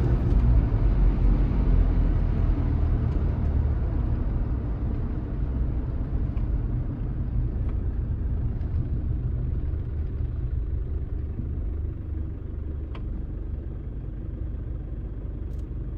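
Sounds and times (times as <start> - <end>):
diesel engine rumble inside cab: 0.0 - 15.9
road and tyre noise: 0.0 - 15.9.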